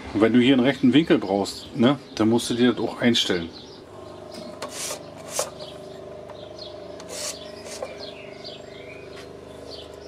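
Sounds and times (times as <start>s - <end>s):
hand scraping on sandpaper belt: 4.6s - 5.6s, 7.0s - 8.0s.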